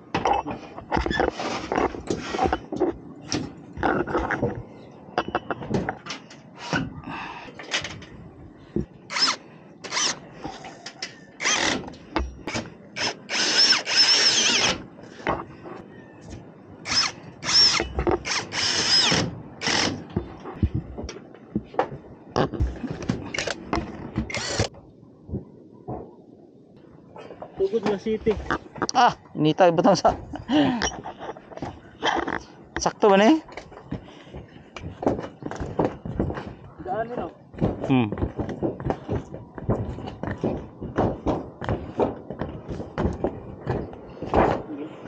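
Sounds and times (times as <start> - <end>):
cordless drill motor whine: 11.4 - 11.8, 13.0 - 14.8.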